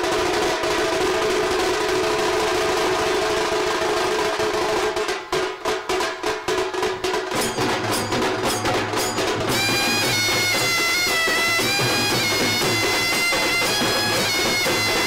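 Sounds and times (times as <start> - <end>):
fast drum strokes: 0.0 - 15.0
held tone: 7.4 - 15.0
high wind instrument melody: 8.0 - 15.0.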